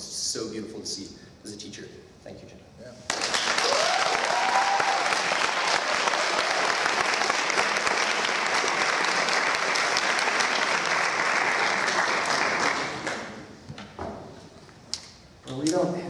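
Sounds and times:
audience applauding: 3.1s - 13.5s.

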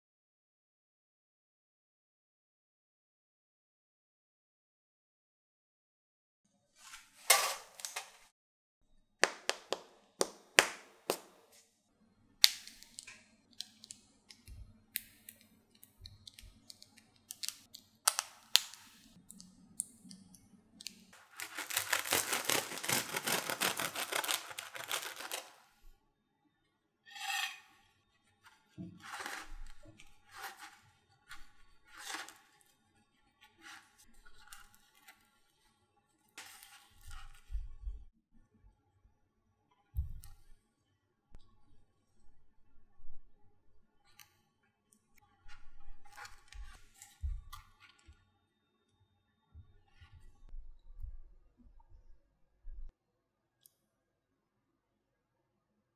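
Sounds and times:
clicks and taps on bread crust: 9.2s - 11.4s
bread crackling crunch: 17.3s - 19.1s, 20.9s - 25.9s, 29.1s - 32.6s
bread roll tearing: 21.2s - 25.8s, 30.2s - 32.6s.

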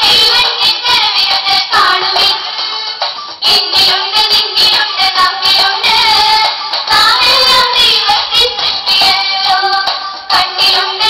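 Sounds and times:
person singing over beat: 0.0s - 11.0s.

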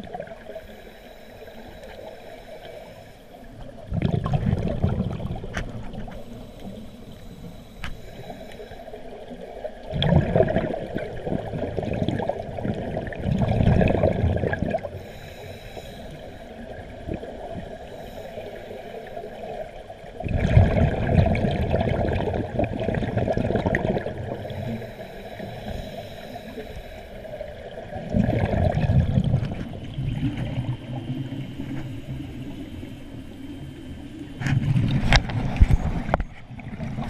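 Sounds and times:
underwater bubbles gurgling: 0.0s - 37.0s
regulator hiss: 0.4s - 3.6s, 6.1s - 9.3s, 15.0s - 16.8s, 17.7s - 19.6s, 24.4s - 27.5s.

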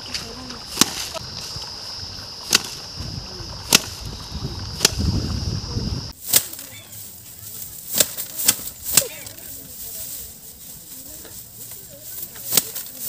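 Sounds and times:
sickle cutting rice stalks: 0.0s - 13.0s.

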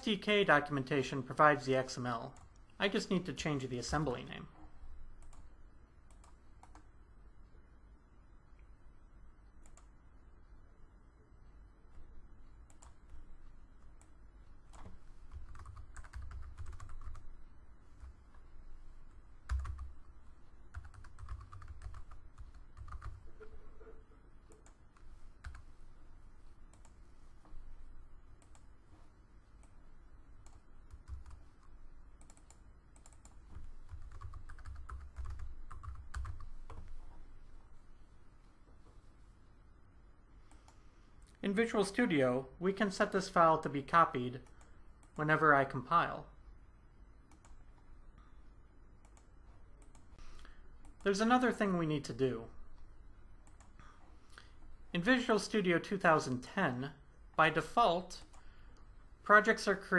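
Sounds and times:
computer keyboard typing: 5.2s - 5.5s, 6.1s - 6.9s, 12.6s - 13.2s, 13.9s - 17.3s, 19.4s - 23.5s, 24.5s - 25.7s, 30.4s - 36.9s.

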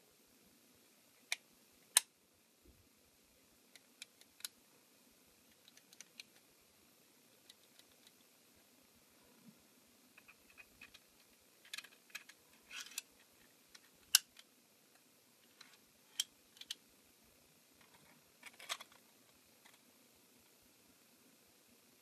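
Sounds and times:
plastic parts clicking and scraping: 5.5s - 6.4s, 10.2s - 14.5s, 15.4s - 16.8s, 17.8s - 19.8s.

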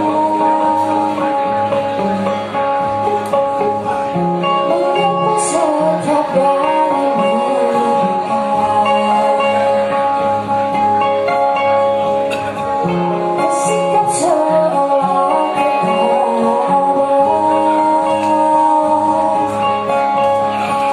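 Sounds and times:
woman singing: 0.0s - 2.0s, 4.6s - 10.4s, 13.2s - 20.2s
acoustic guitars: 0.0s - 20.9s.

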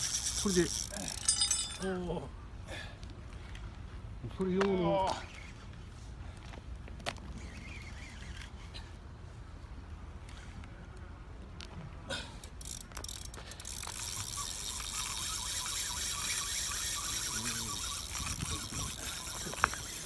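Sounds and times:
fishing reel drag clicking: 0.0s - 1.3s, 7.3s - 8.8s, 12.5s - 20.0s.

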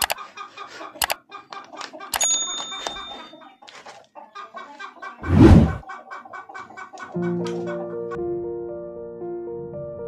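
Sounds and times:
padlock and hasp clinking: 2.2s - 3.3s.

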